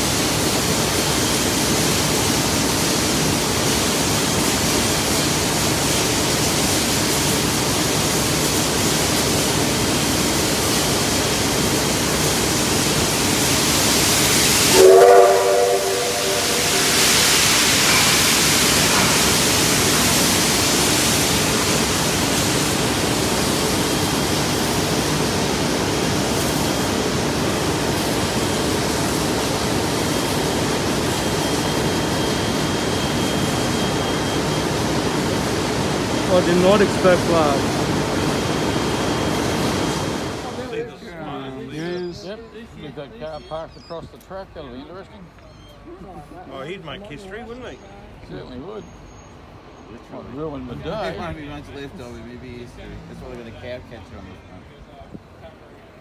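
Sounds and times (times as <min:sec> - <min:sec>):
steam escaping: 0:00.0 - 0:34.7
steam locomotive hissing: 0:00.0 - 0:40.8
steam whistle blast: 0:14.5 - 0:18.0.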